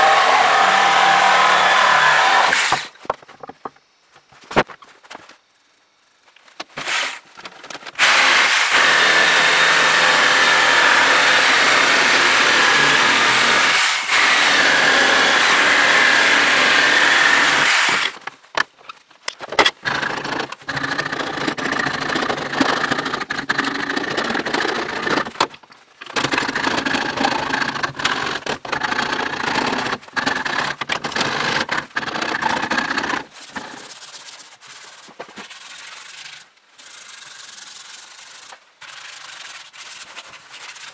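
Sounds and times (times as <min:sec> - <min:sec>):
power tool grinding wood: 0:00.0 - 0:02.9, 0:08.0 - 0:18.2, 0:19.8 - 0:25.4, 0:26.2 - 0:34.0.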